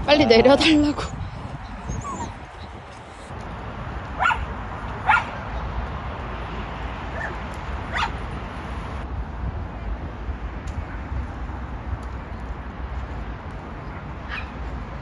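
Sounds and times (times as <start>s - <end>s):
dog barking: 4.2s - 5.4s, 7.1s - 8.2s, 14.3s - 14.6s.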